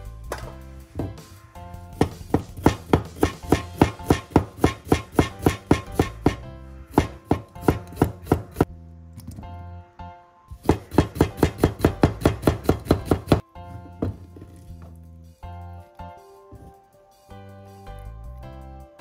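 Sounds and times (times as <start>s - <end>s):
knife chopping on wooden board: 2.0s - 8.7s, 10.6s - 13.4s.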